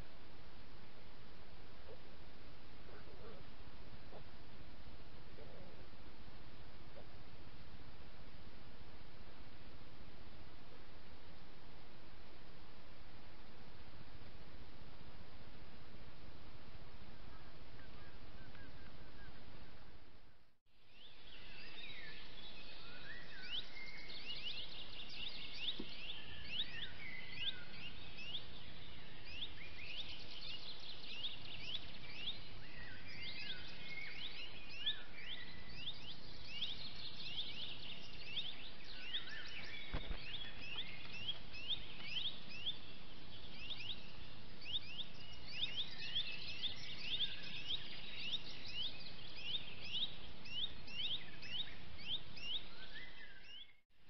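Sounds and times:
microphone hiss: 0.0 - 53.3
small birds chirping: 1.8 - 7.6, 17.2 - 20.0, 20.7 - 54.0.

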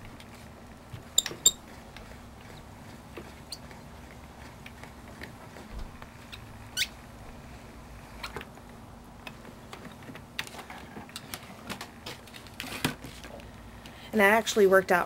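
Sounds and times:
machine rollers squeaking: 1.2 - 4.1.

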